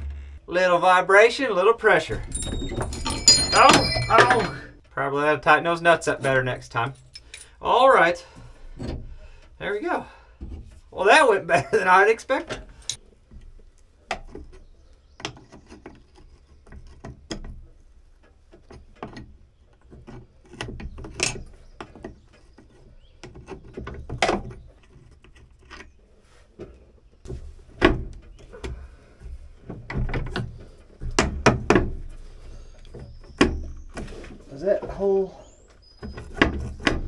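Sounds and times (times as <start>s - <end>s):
wrench clanking on metal: 2.1s - 4.9s.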